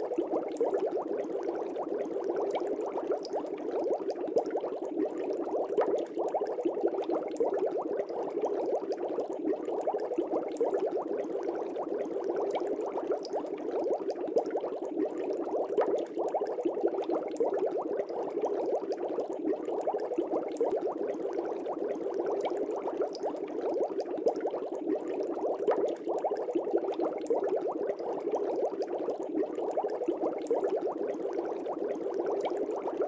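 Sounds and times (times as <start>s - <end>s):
air bubbles in aquarium water: 0.0s - 33.0s.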